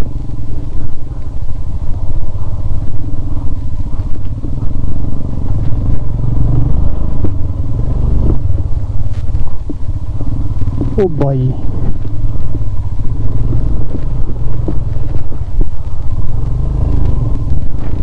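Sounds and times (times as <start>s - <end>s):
motorcycle engine chugging: 0.0s - 18.0s
bike knocking and clattering: 7.1s - 11.1s.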